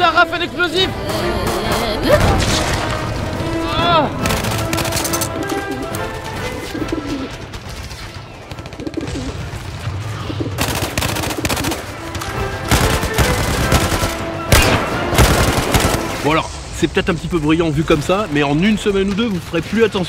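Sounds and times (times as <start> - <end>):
music: 0.0 - 20.0
rapid gunfire: 0.9 - 16.3.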